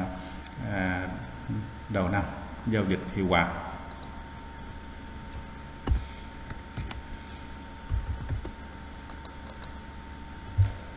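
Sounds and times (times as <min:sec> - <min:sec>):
steady low hum: 0:00.0 - 0:10.9
mouse and keyboard clicks: 0:09.1 - 0:09.8.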